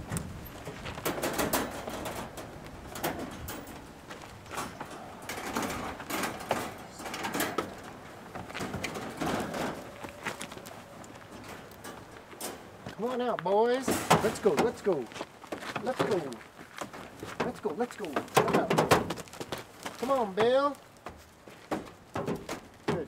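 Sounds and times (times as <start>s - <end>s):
wire crate rattling and clinking: 0.4s - 12.8s, 13.7s - 15.0s, 16.9s - 20.7s, 21.6s - 23.0s
knocks on wire crate: 18.2s - 19.2s, 21.7s - 23.0s.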